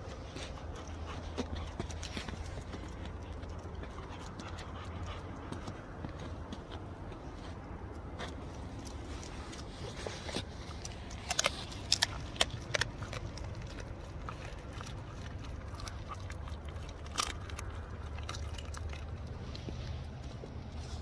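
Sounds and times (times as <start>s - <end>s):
dog mouthing and sniffing: 0.0s - 21.0s
low steady rumble: 0.0s - 21.0s.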